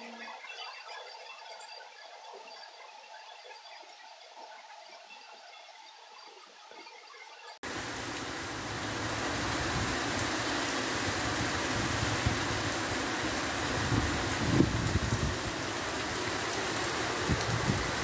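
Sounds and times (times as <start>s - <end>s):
heavy rain on street: 7.6s - 18.0s.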